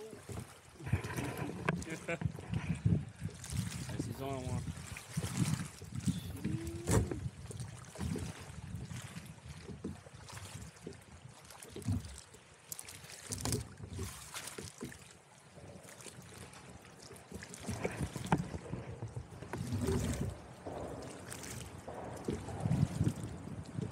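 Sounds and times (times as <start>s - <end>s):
wind on microphone: 0.0s - 10.9s, 17.3s - 23.9s
water slapping against kayak hull: 0.0s - 23.9s.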